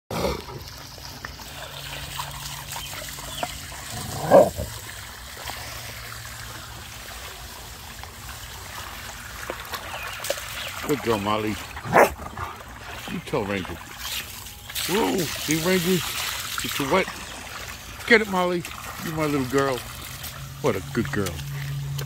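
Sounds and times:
garden hose spraying water: 0.2 - 22.0
dog biting at water stream: 3.4 - 4.8, 11.6 - 12.8.

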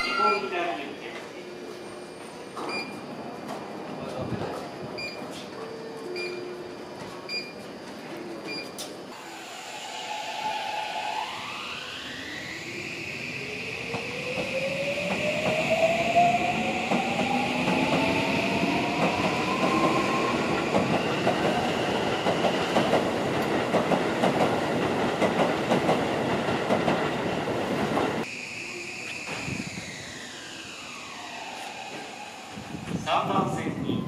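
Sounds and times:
electric train motor whine: 9.1 - 22.2, 28.2 - 34.0.

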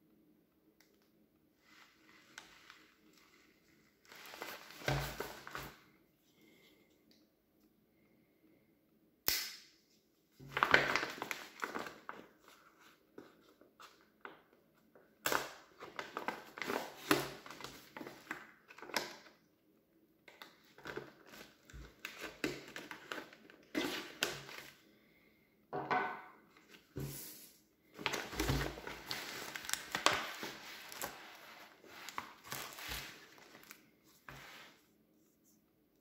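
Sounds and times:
plastic pouch crinkling as cut: 28.1 - 33.8.

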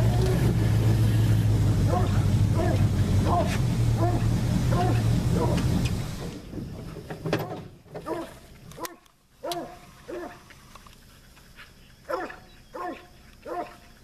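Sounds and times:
dog barking: 1.9 - 5.6, 8.0 - 10.4, 12.1 - 13.8.

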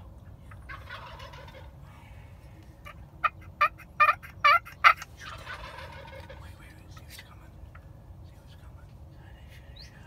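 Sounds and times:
turkey gobbling: 0.5 - 1.8, 2.8 - 6.4
turkey yelps: 0.7 - 1.7, 2.8 - 6.4.

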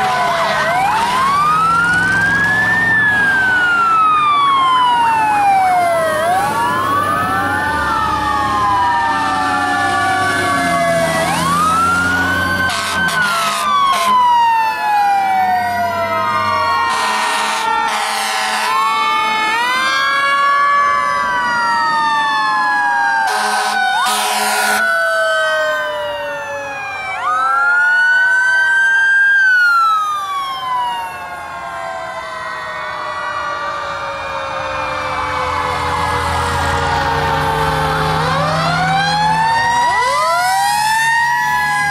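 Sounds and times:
diesel engines rumbling: 0.0 - 41.9
sirens wailing: 0.0 - 41.9
air horn blasts: 12.6 - 14.3, 16.9 - 18.8, 23.2 - 24.9.

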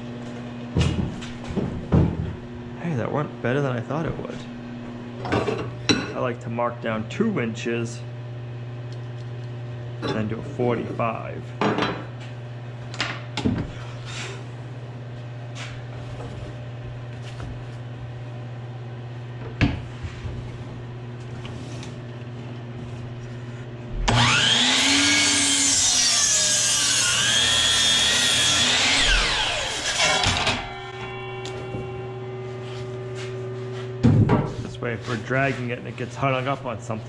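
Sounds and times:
steady low hum: 0.0 - 24.6, 29.0 - 37.0
miter saw cutting wood: 24.0 - 31.2.

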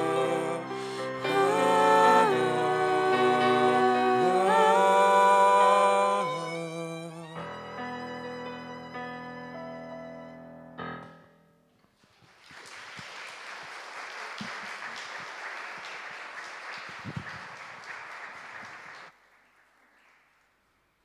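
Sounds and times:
audience applauding: 12.1 - 20.4.

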